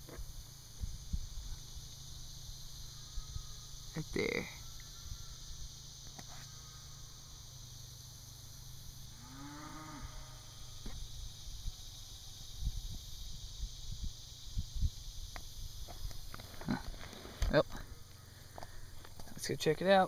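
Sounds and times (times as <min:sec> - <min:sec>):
cow mooing: 0:09.1 - 0:10.7.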